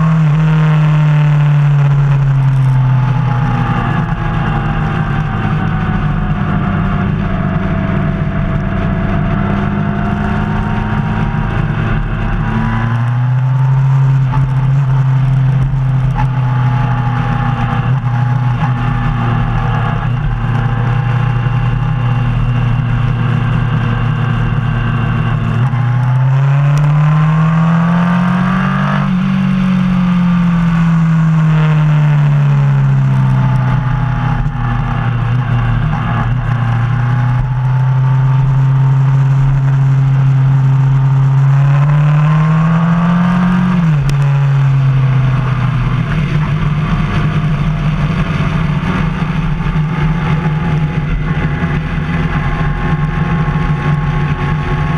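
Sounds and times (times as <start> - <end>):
motorcycle engine accelerating: 0.0 - 54.9.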